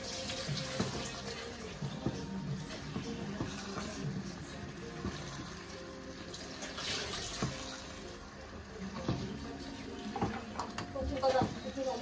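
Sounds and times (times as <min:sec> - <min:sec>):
spatula stirring thick sauce: 0:00.0 - 0:10.6.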